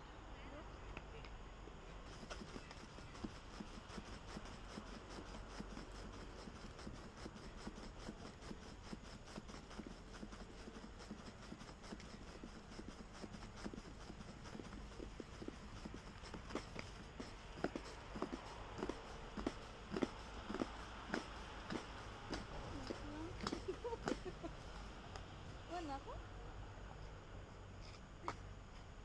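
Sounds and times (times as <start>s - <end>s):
battle ropes slapping stone: 2.0s - 24.3s.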